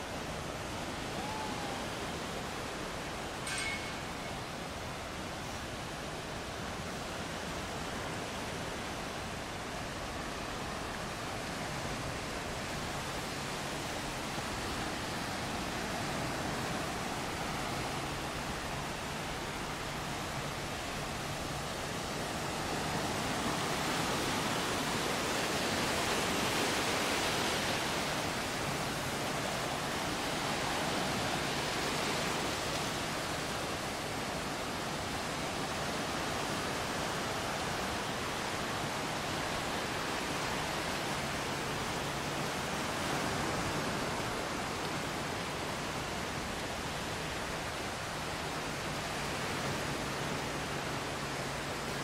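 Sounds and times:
waves breaking on a beach: 0.0 - 52.0.

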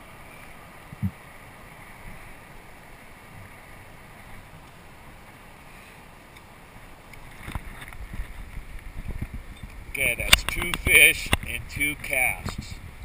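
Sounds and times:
wind and water noise: 0.0 - 13.0
light knocks and bumps: 0.9 - 1.2.

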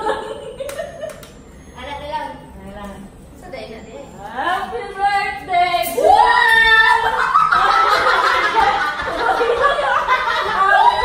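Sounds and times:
laughter: 0.0 - 1.3, 6.9 - 11.0.

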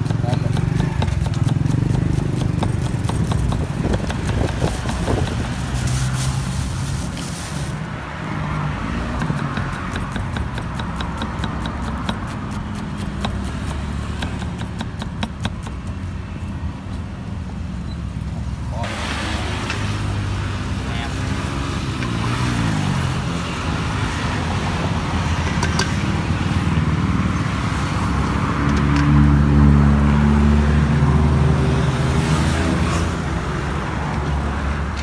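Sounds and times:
knife chopping on wooden board: 0.0 - 5.4, 9.1 - 16.0
traffic rumble: 0.0 - 35.0.

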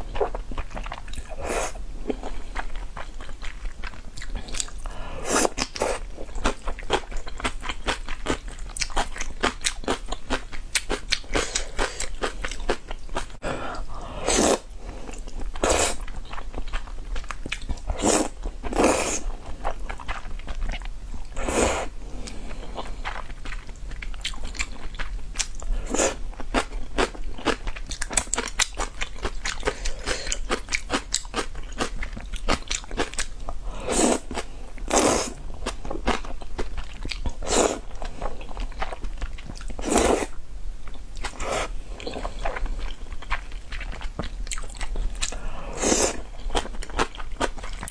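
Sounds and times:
wet chewing with crunch: 0.0 - 1.4, 2.1 - 13.4, 14.3 - 21.5, 22.2 - 47.9
slurping noodles: 14.1 - 14.7, 17.9 - 19.3, 21.4 - 21.9, 33.8 - 35.4, 39.8 - 40.3, 45.4 - 46.3.

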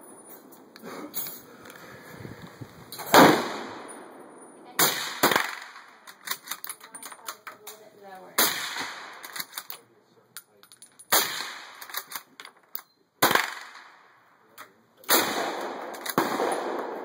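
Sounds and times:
rifle shots: 3.1 - 4.0, 4.8 - 6.6, 8.4 - 9.6, 11.1 - 12.2, 13.2 - 14.1, 15.1 - 17.0.

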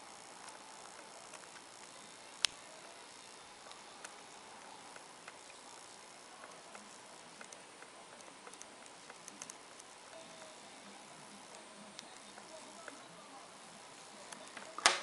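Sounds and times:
steady hiss: 0.0 - 15.0
screwdriver clicks and ticks: 7.4 - 10.6.

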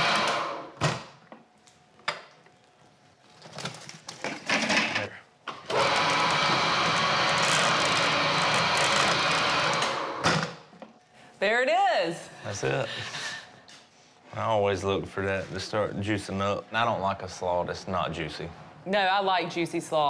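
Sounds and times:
mixer motor running down: 0.0 - 0.8, 5.7 - 10.3
machine whirring: 5.6 - 10.6.

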